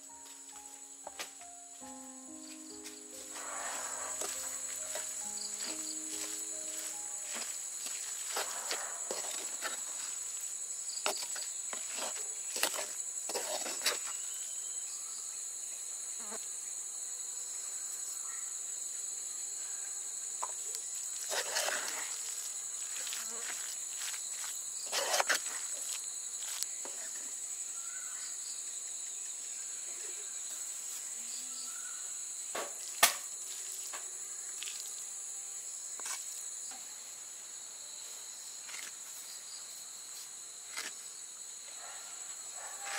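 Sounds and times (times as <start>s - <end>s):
insects trilling: 0.0s - 42.9s
spoon scraping in clay pot: 8.3s - 9.9s, 11.2s - 14.1s, 21.2s - 22.0s, 24.9s - 25.6s.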